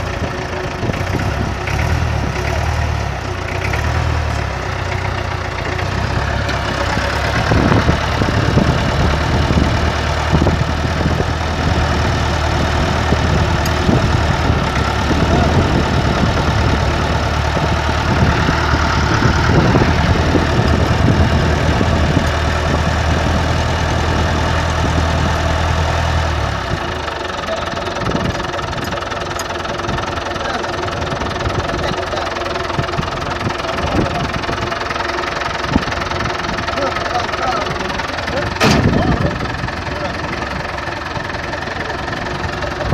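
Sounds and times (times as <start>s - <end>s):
engine idling with knocks: 0.0s - 42.9s.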